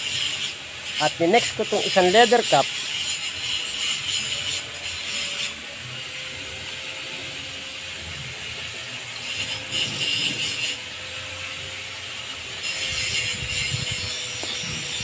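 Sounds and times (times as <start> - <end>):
leather cup grating on threaded stem: 0.0 - 6.1, 9.1 - 10.9, 12.6 - 15.0.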